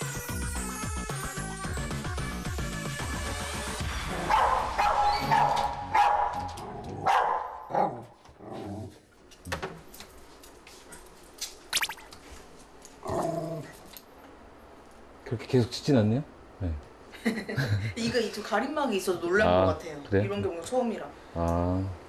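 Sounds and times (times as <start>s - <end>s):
small dog barking: 4.2s - 8.0s.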